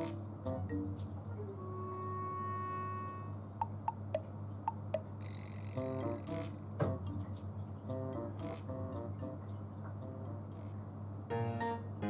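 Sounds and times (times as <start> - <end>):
ticking notes: 0.0 - 5.2, 5.8 - 10.8
chime-like note: 1.4 - 5.1.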